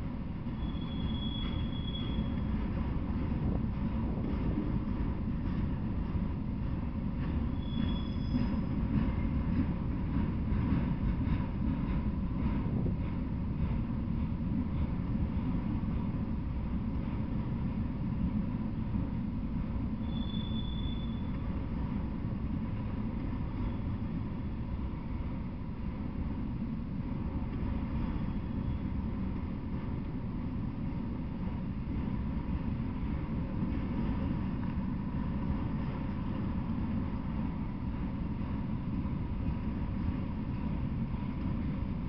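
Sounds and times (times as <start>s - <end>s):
train wheels rumbling on rail: 0.0s - 42.0s
faint high squeal: 0.5s - 2.5s, 7.5s - 8.8s, 20.0s - 21.4s, 23.5s - 24.0s, 28.1s - 29.0s.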